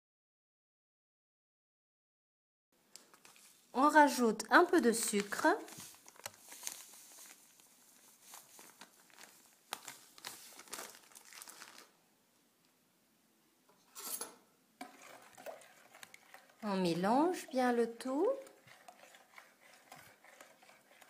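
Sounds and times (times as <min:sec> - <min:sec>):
plastic bag crinkling: 0:04.8 - 0:12.0.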